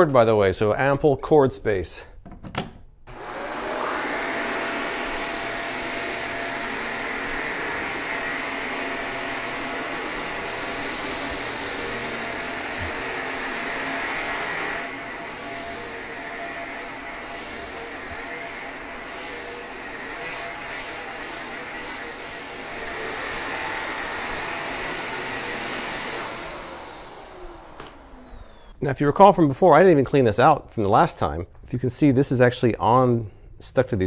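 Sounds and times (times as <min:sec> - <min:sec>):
vacuum cleaner motor whine: 0:03.1 - 0:28.8.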